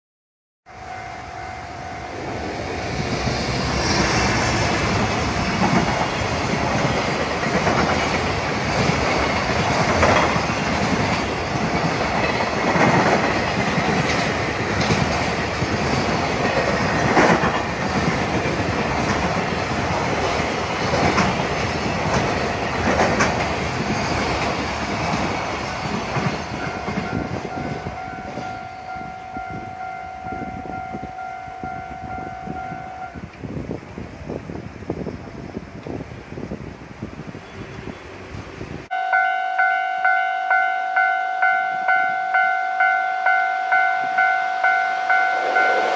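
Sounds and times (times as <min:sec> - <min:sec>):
level crossing warning tone: 0:00.7 - 0:02.9, 0:26.2 - 0:33.2, 0:38.9 - 0:45.9
freight train passing: 0:00.7 - 0:45.9
wheels clacking over rail joints: 0:03.0 - 0:28.5.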